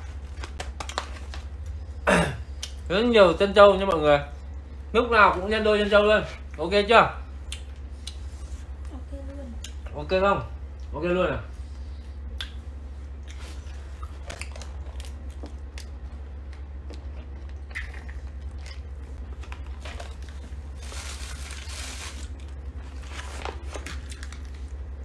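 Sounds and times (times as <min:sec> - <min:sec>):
steady low hum: 0:00.0 - 0:25.0
plastic packet crinkling: 0:19.3 - 0:24.8.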